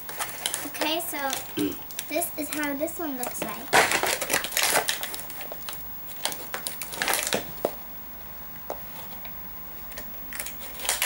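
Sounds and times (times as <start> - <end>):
plastic packaging crinkling: 0.0 - 7.7, 9.9 - 11.0.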